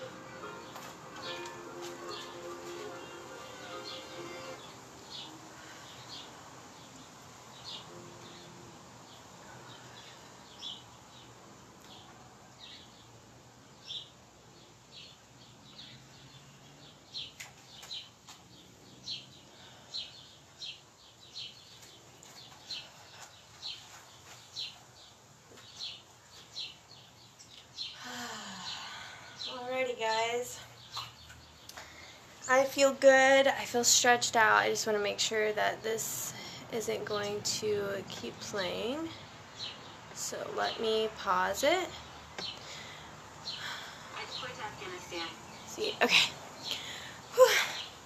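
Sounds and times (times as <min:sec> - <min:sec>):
faint steady background: 0:00.0 - 0:48.0
bird chirping: 0:38.2 - 0:48.0.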